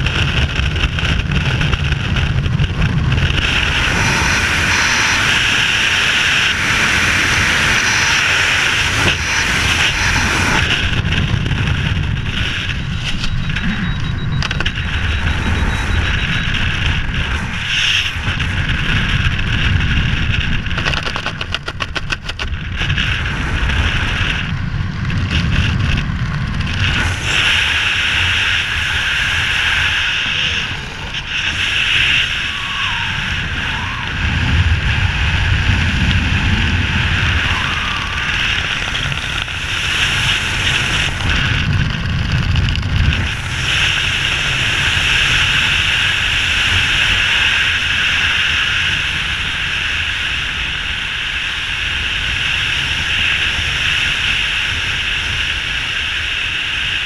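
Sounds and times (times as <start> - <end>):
wind buffeting microphone: 0.0 - 57.0
parachute fluttering: 25.4 - 45.9.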